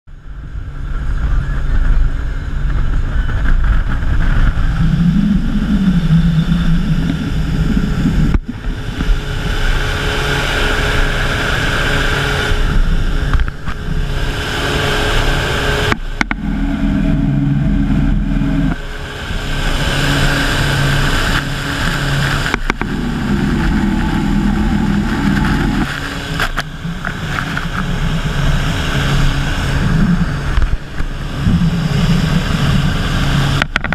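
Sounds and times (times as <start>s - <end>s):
powerboat engine drone: 0.1s - 33.9s
churning wake water: 0.2s - 33.9s
wind on microphone: 0.2s - 33.9s.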